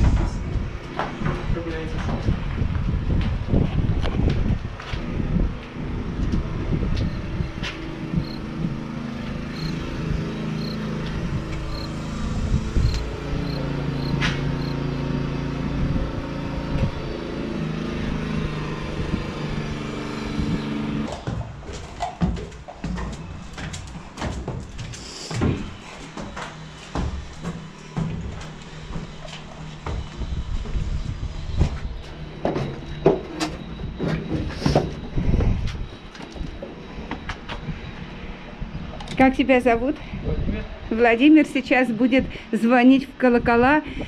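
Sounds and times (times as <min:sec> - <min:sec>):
footsteps on wooden stairs: 0:00.0 - 0:09.9, 0:20.5 - 0:38.1
low rumble: 0:00.0 - 0:17.3.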